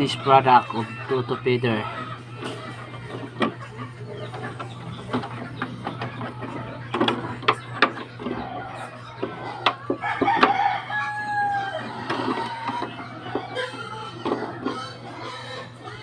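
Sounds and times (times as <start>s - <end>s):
rooster crowing: 9.9s - 13.2s.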